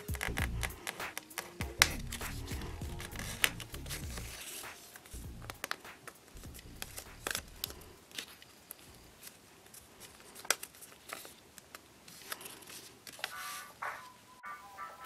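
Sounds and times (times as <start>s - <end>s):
paper crinkling and crackling: 0.0s - 14.1s.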